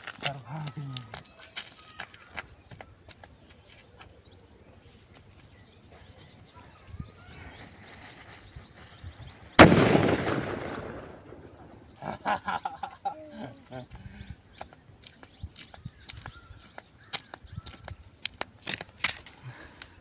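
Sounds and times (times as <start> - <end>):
firecracker bang: 9.5 - 11.9.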